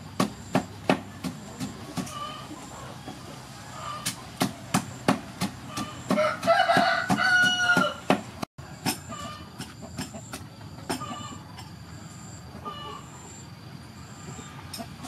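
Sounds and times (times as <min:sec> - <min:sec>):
wooden pestle striking mortar: 0:04.4 - 0:11.0
rooster crowing: 0:05.7 - 0:09.6.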